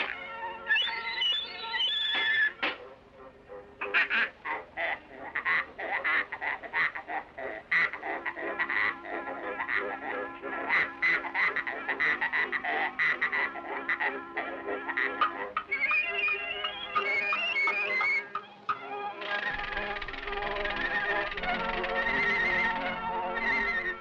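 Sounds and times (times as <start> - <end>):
cartoon pig squeals in a tune: 0.0 - 2.6, 15.1 - 18.4
steady accompaniment notes: 8.3 - 24.0.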